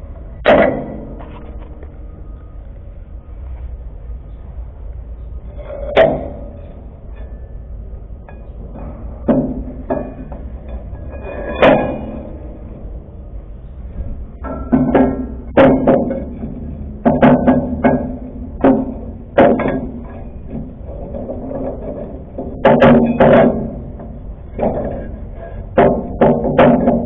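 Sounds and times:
steady low hum: 0.0 - 27.0
steel spring leaves clanking: 0.0 - 27.0
sharp metal knocks: 0.4 - 1.6, 5.6 - 7.6, 8.2 - 13.0, 13.6 - 27.0.

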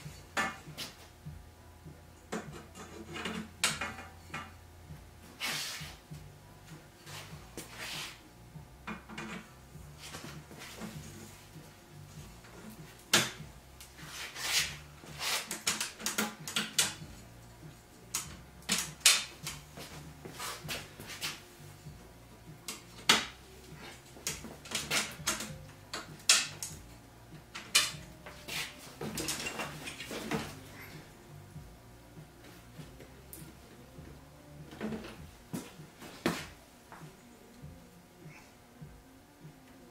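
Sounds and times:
metal parts clicking and rattling: 29.0 - 31.0.

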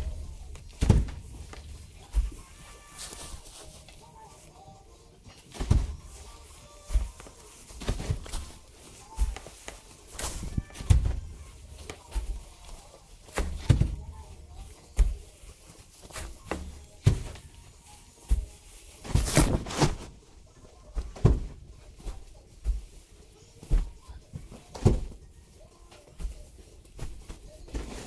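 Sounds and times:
knocks and thumps: 0.0 - 2.6, 5.5 - 6.3, 10.1 - 12.6, 13.3 - 14.4, 16.1 - 17.6, 21.0 - 21.7, 23.7 - 25.2.

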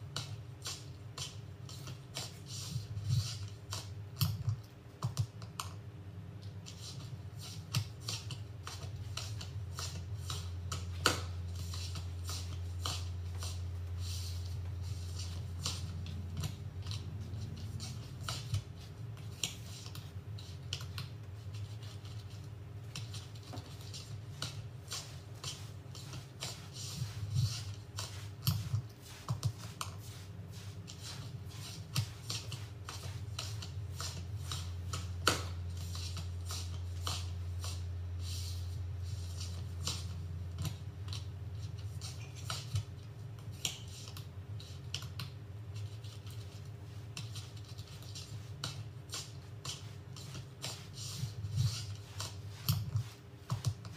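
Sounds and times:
steady low hum: 0.0 - 53.9.

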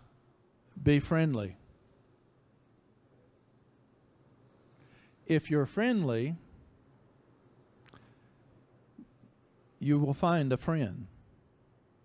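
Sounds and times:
faint click: 7.8 - 8.2.

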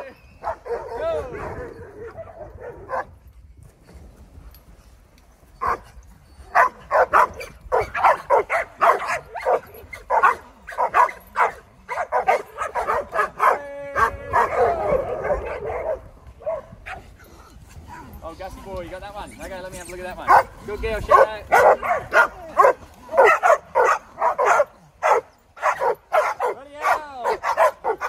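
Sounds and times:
dogs barking and yipping: 0.0 - 3.2, 5.4 - 18.2, 19.4 - 28.0.

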